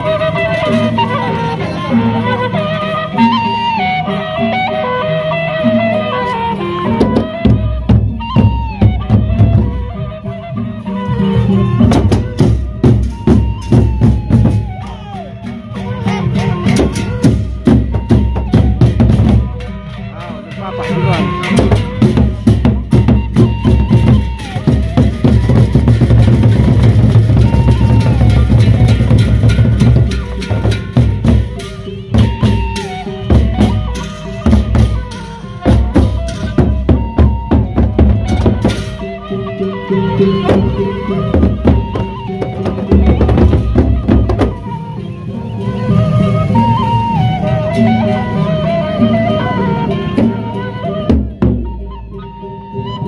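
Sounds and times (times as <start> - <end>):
wavering melody: 0.0 - 53.0
barrel drums beaten with sticks: 7.0 - 9.8, 11.8 - 15.0, 16.0 - 19.8, 20.8 - 39.2, 40.3 - 44.8, 51.0 - 51.8.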